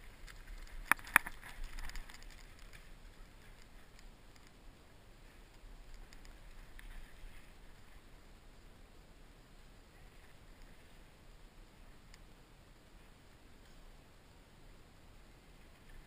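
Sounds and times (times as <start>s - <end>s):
low steady hiss: 0.0s - 16.0s
faint scattered ticking: 5.4s - 8.0s.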